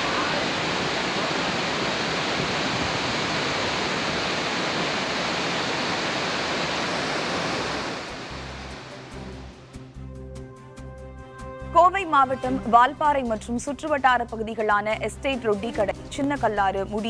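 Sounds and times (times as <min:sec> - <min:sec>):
waterfall rushing: 0:00.0 - 0:09.6.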